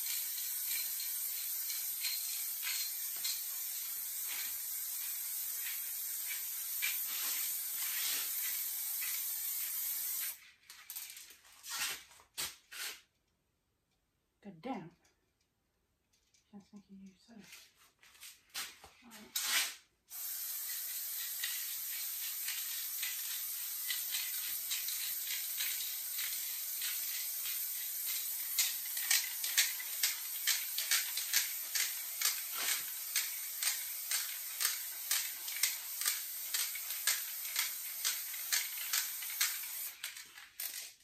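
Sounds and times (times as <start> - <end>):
spray paint can hissing: 0.0 - 10.4, 19.4 - 41.0.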